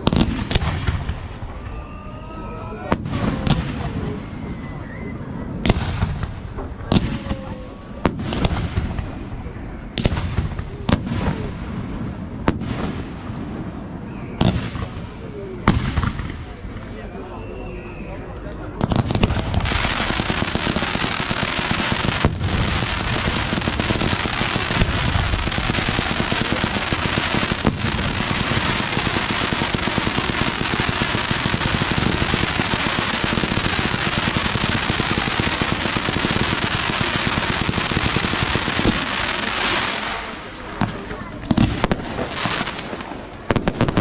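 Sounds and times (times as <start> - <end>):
fireworks crackling and banging: 0.0 - 44.0.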